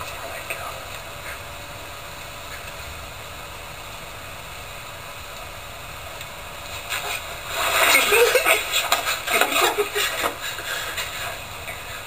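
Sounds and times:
recording hiss: 0.0s - 12.0s
rustling: 6.2s - 12.0s.

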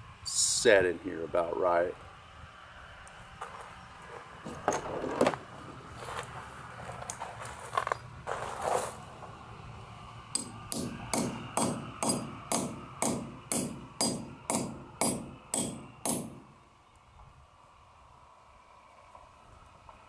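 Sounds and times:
hammer tapping metal anchor: 10.4s - 16.5s.

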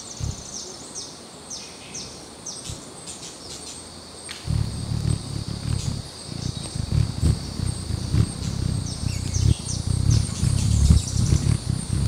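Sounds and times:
hummingbird wings humming: 0.0s - 0.6s, 4.5s - 12.0s
faint high whine: 4.5s - 12.0s.

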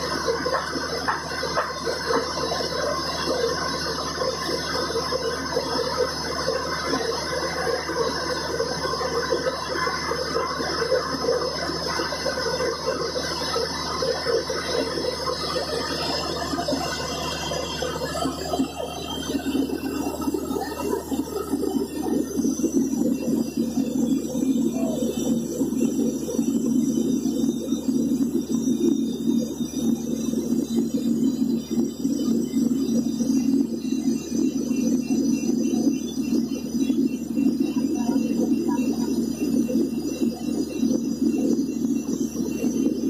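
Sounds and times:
drilling rig running: 0.0s - 29.6s.

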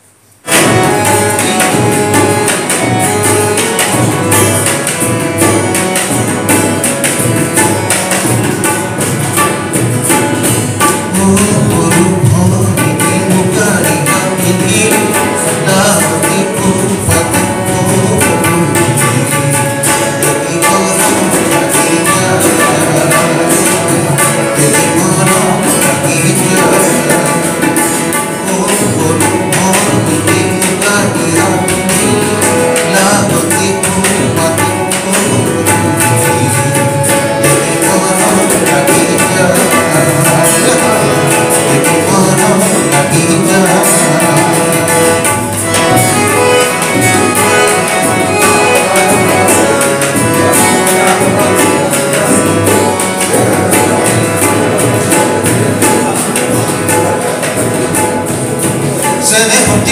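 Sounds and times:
harmonium: 0.0s - 59.9s
tabla drums: 0.0s - 59.9s
guitar: 0.4s - 59.9s
man singing: 10.8s - 57.6s, 58.9s - 59.9s.

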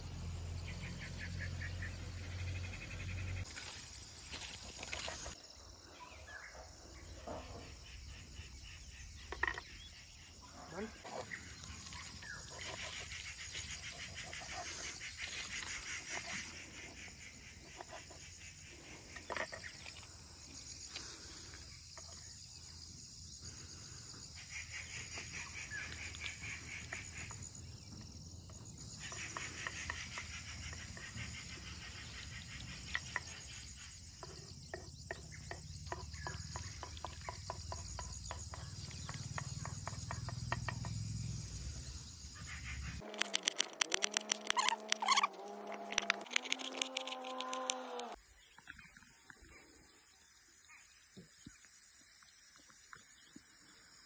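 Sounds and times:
birds calling: 0.0s - 5.4s, 6.0s - 20.2s, 23.4s - 49.7s
insects chirring: 0.1s - 54.0s
rapid clicking bird trill: 43.0s - 48.2s.

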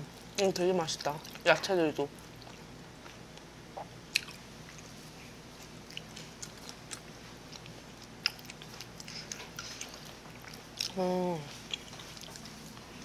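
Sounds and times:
person chewing food: 2.2s - 13.0s.

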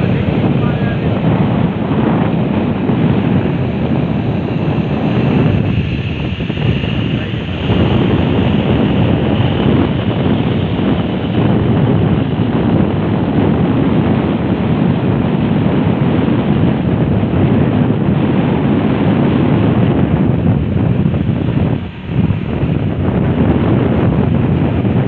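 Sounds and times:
wind buffeting microphone: 0.0s - 25.0s.

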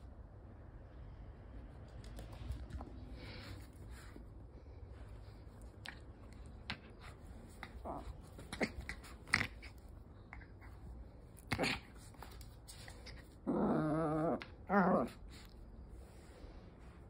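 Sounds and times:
dog scuffling: 5.6s - 13.4s.

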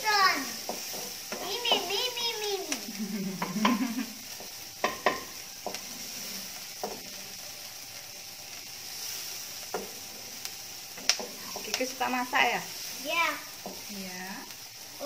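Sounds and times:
onion and garlic sizzling: 0.0s - 15.0s.

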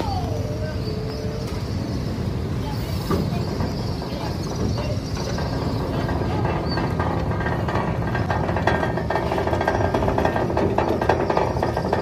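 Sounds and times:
ship engines rumbling: 0.0s - 12.0s
fast mechanical clattering: 3.1s - 12.0s.

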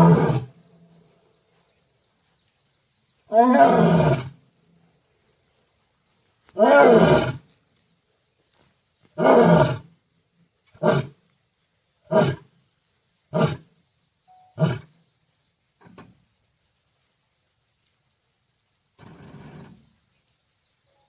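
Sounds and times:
lion roaring: 0.0s - 0.5s, 3.3s - 4.3s, 6.6s - 7.4s.

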